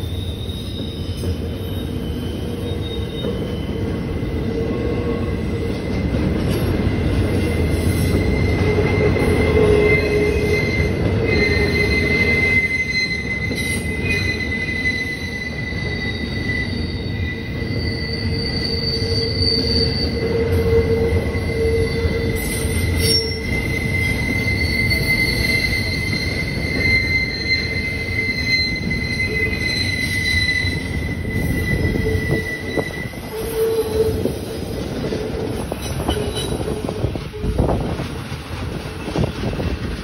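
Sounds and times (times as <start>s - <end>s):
rumble of wheels on track: 0.0s - 40.0s
train wheels squealing on rails: 0.0s - 40.0s.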